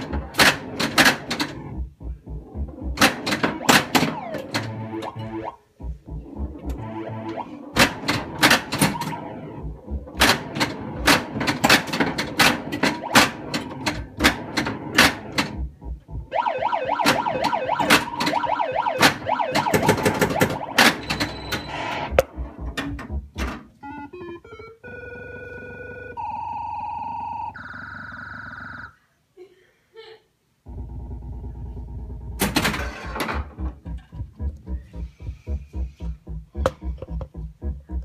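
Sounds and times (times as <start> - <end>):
electronic sound effects: 3.5 - 7.6
warbling electronic effect: 3.6 - 7.6
pinball solenoid knocks: 7.8 - 9.2, 10.2 - 15.6, 19.0 - 21.5, 32.4 - 33.5
stepping electronic tones: 16.1 - 22.2.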